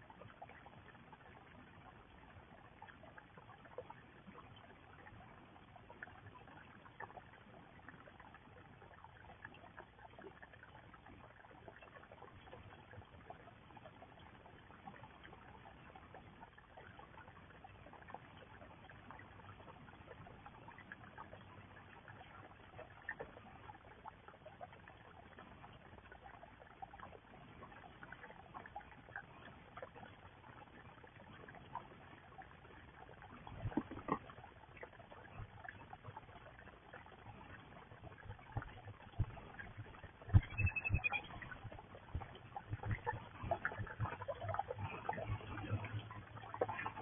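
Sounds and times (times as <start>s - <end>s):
small water splashes: 0.0s - 47.0s
water trickling into pond: 0.0s - 47.0s.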